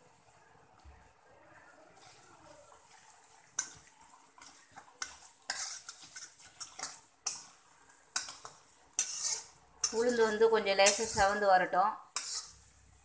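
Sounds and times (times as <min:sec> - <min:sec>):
faint sizzle of frying spices: 0:00.0 - 0:13.0
metal spoon scraping steel pan: 0:03.6 - 0:07.5, 0:08.1 - 0:11.4, 0:12.1 - 0:12.8.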